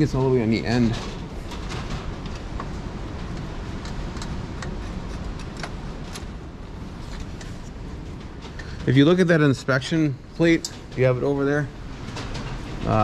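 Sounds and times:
low wind rumble: 0.0s - 13.0s.

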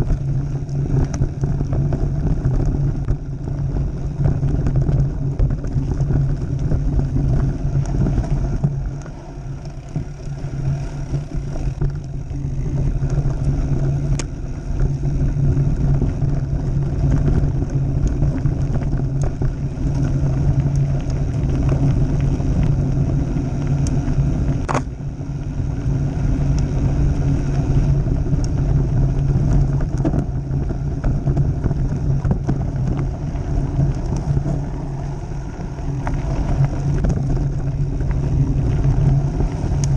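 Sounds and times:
bike rattling: 0.0s - 39.9s
bike tyres rumbling on gravel: 0.0s - 39.9s
wind buffeting microphone: 0.0s - 39.9s.

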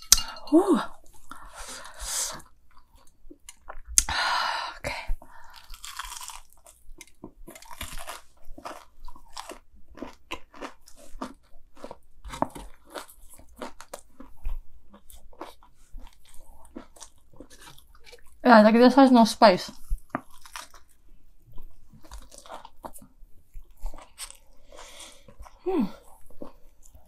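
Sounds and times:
crunchy chewing: 5.5s - 18.4s, 19.7s - 27.0s.

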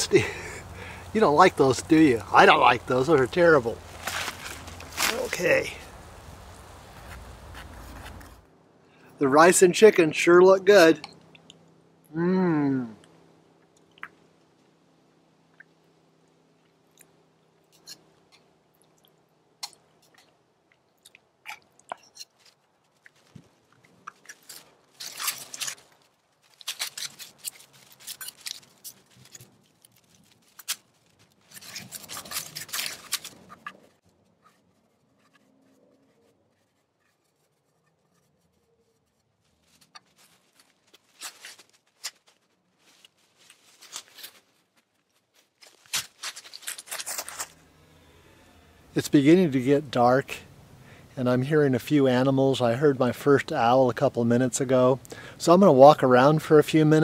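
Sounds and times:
footsteps crunching dry leaves: 2.1s - 8.4s, 22.4s - 34.0s, 39.5s - 47.6s.

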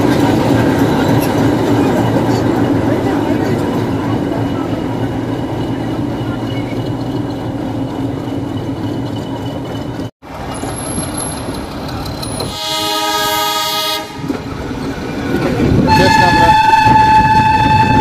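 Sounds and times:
train carriages rumbling: 0.0s - 18.0s
locomotive horn: 12.4s - 14.4s, 15.9s - 18.0s.

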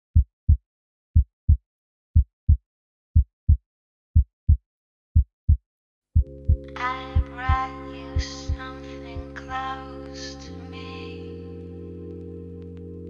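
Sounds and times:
heartbeat thumps: 6.2s - 9.3s
low synth chord: 6.2s - 13.0s.

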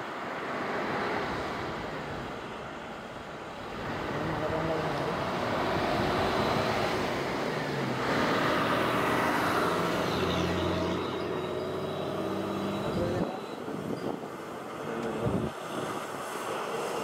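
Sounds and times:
lorry diesel engine passing: 3.6s - 17.0s.

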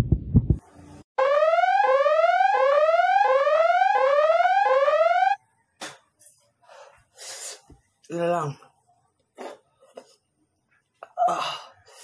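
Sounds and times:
electronic whooping alarm: 1.2s - 5.4s.

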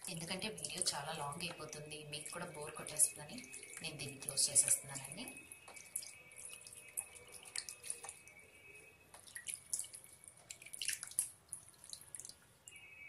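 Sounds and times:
hands splashing in water: 9.2s - 12.4s.

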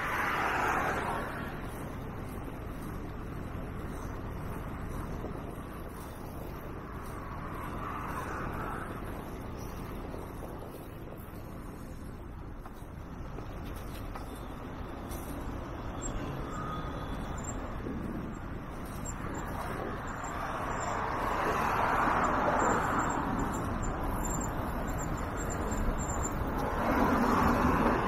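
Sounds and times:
vehicles passing: 0.0s - 28.0s.

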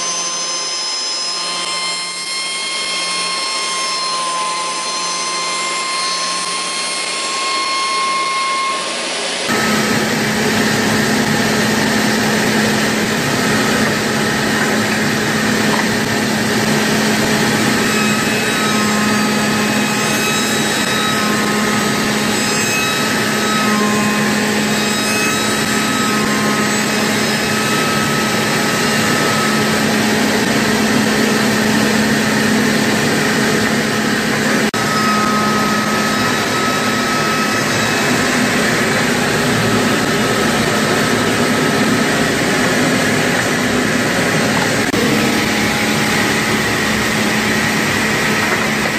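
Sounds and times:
wood shaper machine cutting: 0.0s - 48.9s
short high whines: 3.0s - 16.6s
strong steady hum: 5.4s - 19.6s, 26.2s - 48.9s.

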